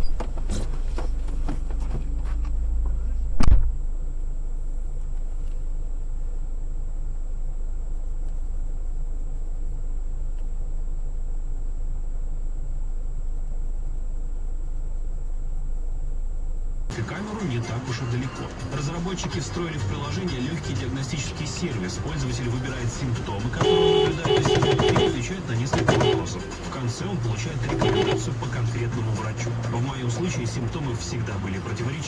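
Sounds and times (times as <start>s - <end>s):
vehicle engine idling: 0.0s - 32.0s
loud thump: 0.1s - 3.8s.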